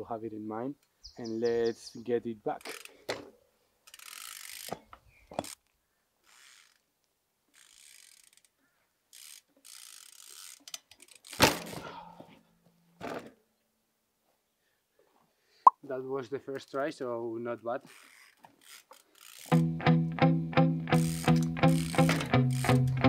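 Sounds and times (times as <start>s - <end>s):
bike freehub ratchet buzzing: 3.8s - 4.8s, 6.2s - 6.9s, 7.5s - 8.5s, 9.1s - 11.4s, 17.9s - 19.7s, 20.9s - 23.0s
bike crashing to the ground: 11.2s - 12.4s, 13.0s - 13.4s.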